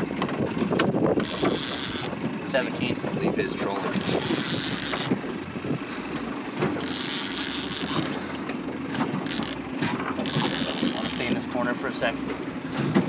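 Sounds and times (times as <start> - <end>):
wind rumbling on microphone: 0.0 - 6.9
boat motor running: 0.0 - 13.0.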